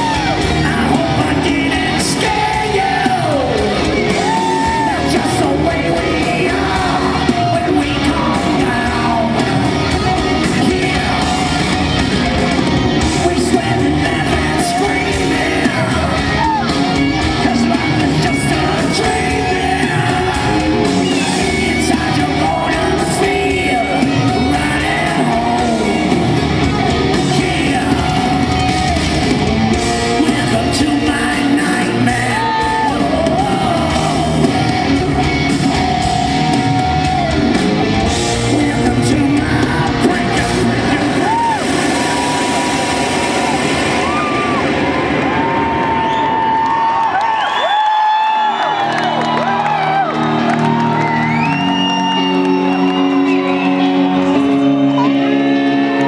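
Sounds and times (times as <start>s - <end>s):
man singing into microphone: 0.0s - 11.6s, 13.0s - 16.7s, 17.4s - 26.5s, 27.1s - 28.7s, 30.1s - 34.8s, 38.2s - 42.7s
live rock band playing: 0.0s - 56.0s.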